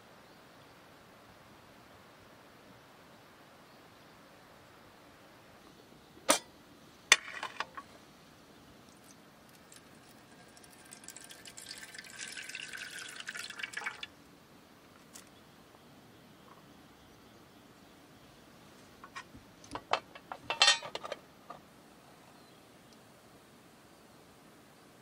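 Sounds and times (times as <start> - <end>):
water pouring into metal tin: 8.9 - 14.1.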